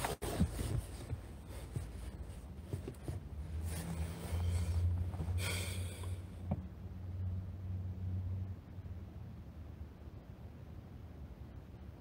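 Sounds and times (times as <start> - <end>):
car cabin hum: 0.0 - 7.6
breath close to microphone: 4.3 - 6.3.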